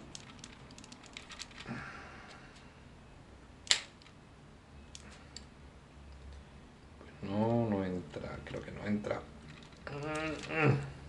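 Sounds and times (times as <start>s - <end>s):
plastic parts clicking and rattling: 0.0s - 1.7s, 9.5s - 10.6s.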